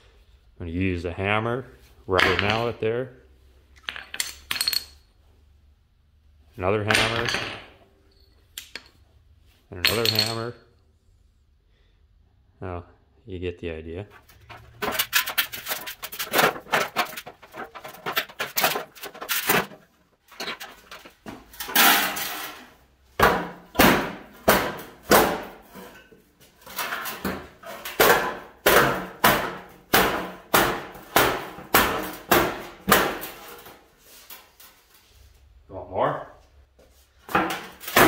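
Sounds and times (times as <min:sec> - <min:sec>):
metal panel stomped on concrete: 0:14.1 - 0:21.2
metal panel clanking and scraping: 0:14.1 - 0:22.7.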